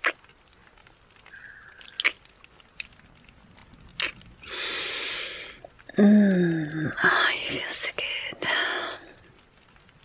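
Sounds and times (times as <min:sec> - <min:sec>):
wet kissing smacks: 0:01.8 - 0:02.9, 0:04.0 - 0:04.2
breathy exhale: 0:04.4 - 0:05.6.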